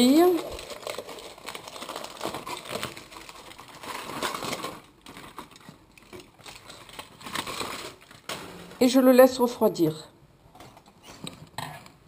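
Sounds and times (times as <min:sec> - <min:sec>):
aluminium foil crinkling: 0:00.0 - 0:09.6.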